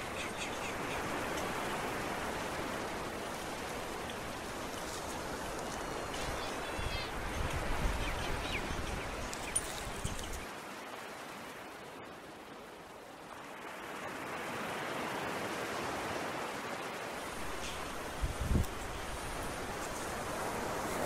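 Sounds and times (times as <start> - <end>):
wind rumble on microphone: 0.8 - 10.5, 17.3 - 21.0.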